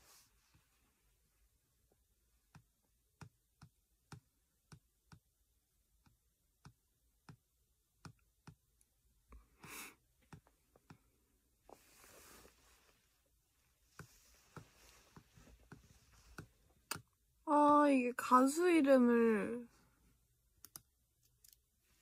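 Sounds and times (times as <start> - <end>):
person breathing: 9.4 - 10.0, 11.7 - 13.0.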